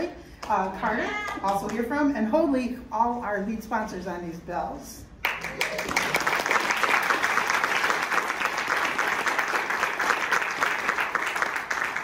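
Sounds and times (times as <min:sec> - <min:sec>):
group of people applauding: 0:05.2 - 0:12.0.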